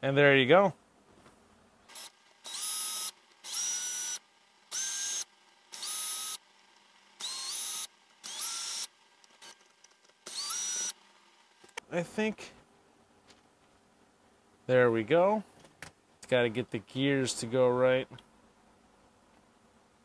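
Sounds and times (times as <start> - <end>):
cordless drill motor whine: 1.9 - 11.8.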